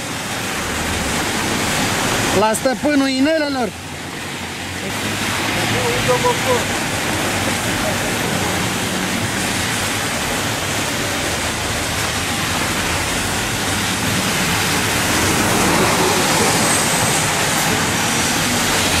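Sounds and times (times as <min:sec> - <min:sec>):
car tyres hissing on wet street: 0:00.0 - 0:19.0
heavy rain: 0:00.0 - 0:19.0
truck passing: 0:03.8 - 0:19.0.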